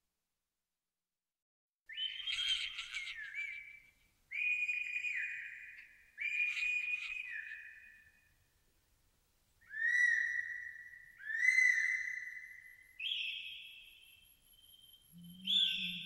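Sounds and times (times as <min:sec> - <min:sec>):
whistle-like tones: 0:13.0 - 0:16.0.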